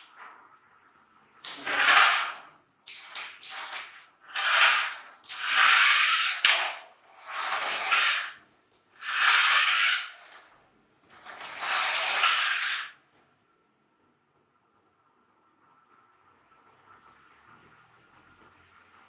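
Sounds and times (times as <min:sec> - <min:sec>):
toy car electric motor whirring: 0:07.2 - 0:08.4, 0:09.0 - 0:10.5, 0:11.4 - 0:12.9.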